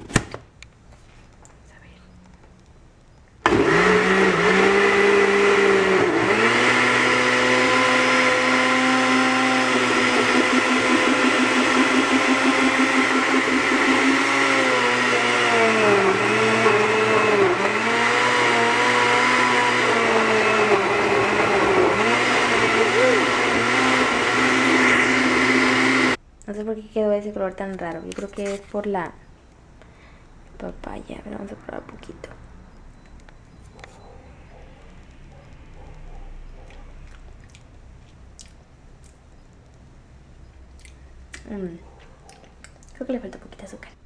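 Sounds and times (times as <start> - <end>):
blender motor running: 3.5 - 26.2.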